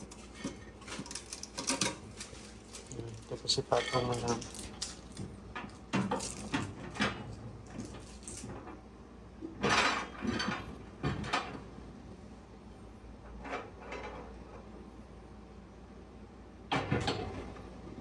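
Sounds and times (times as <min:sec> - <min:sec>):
glass and plastic clinking: 0:00.1 - 0:05.1.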